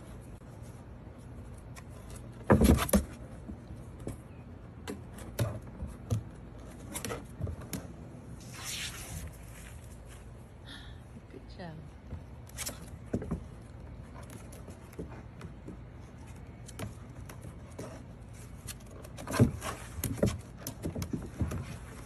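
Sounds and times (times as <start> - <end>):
rustling scrape: 8.3 - 10.4
paws scrabbling on plastic steps: 12.1 - 22.0.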